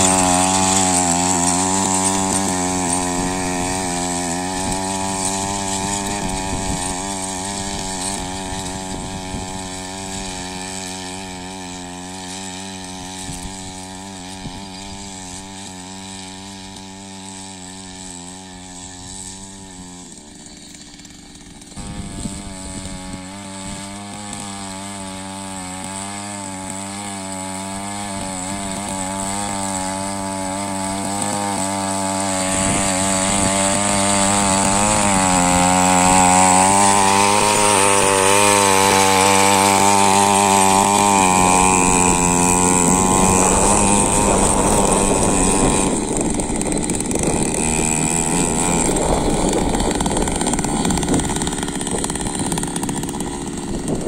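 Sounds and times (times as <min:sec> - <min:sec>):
power weeder engine running: 0:00.0 - 0:54.0.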